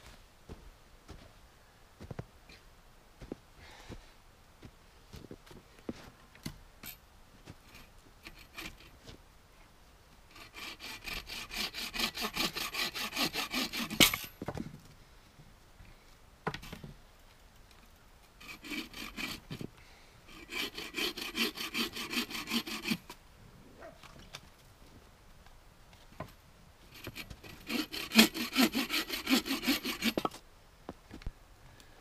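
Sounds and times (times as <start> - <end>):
bow saw cutting log: 7.7 - 8.9, 10.3 - 14.3, 18.4 - 19.7, 20.3 - 23.2, 26.9 - 30.4.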